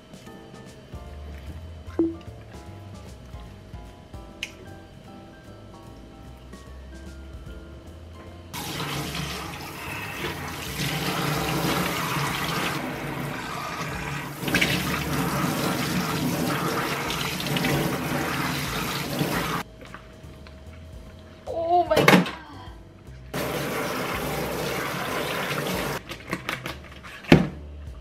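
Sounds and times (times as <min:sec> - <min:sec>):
tap running into sink: 0:13.8 - 0:19.6, 0:23.4 - 0:26.0.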